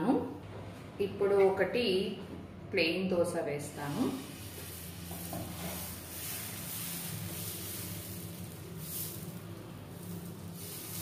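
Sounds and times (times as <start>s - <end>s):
steady low hum: 0.0s - 11.0s
batter hissing and scraping on pan: 4.0s - 11.0s.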